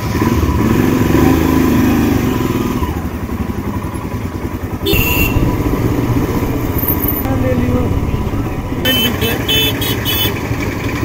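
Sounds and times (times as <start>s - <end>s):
brief sharp loud noise: 4.9s - 10.1s
motorcycle engine running: 4.9s - 10.1s.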